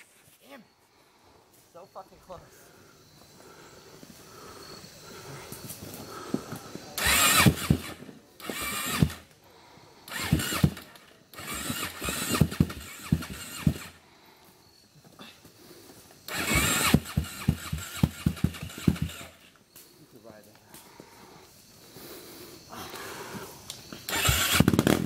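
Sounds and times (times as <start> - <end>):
atv engine bursts with popping: 6.2 - 9.4, 10.1 - 14.0, 16.3 - 19.6, 24.0 - 25.0.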